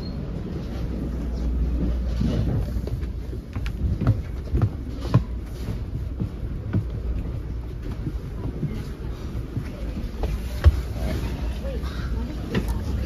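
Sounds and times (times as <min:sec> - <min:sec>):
rail car low rumble: 0:00.0 - 0:13.0.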